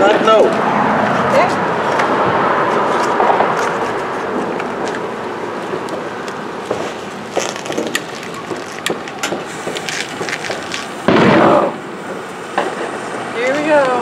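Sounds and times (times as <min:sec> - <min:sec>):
fireworks crackling and popping: 0:00.0 - 0:14.0
firework fuse burst: 0:06.8 - 0:14.0.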